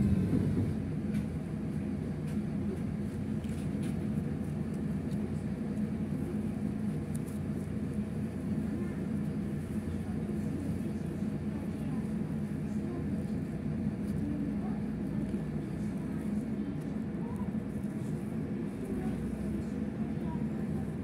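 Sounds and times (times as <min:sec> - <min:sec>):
passing traffic: 0:00.0 - 0:01.3
tram interior rumble and hum: 0:00.0 - 0:21.0.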